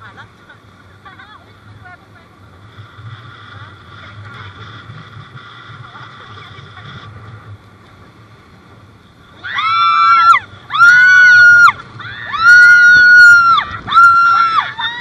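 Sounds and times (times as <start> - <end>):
rush of wind and water: 0.0 - 15.0
women screaming and whooping: 9.3 - 15.0.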